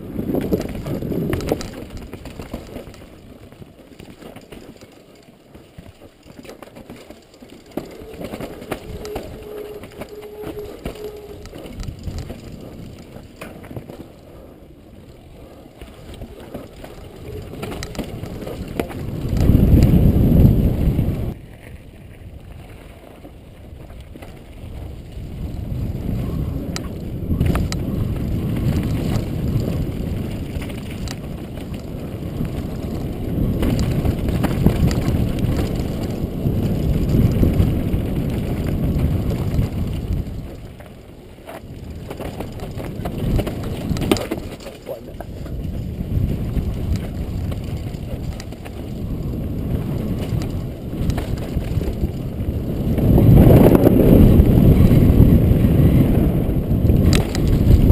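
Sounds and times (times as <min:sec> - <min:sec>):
bike rattling over bumps: 0:00.0 - 0:57.9
wind rush on microphone: 0:00.0 - 0:57.9.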